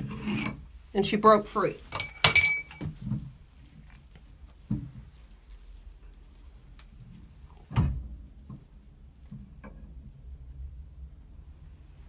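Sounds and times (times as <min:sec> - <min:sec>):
metallic wrench clink: 0:01.9 - 0:02.8.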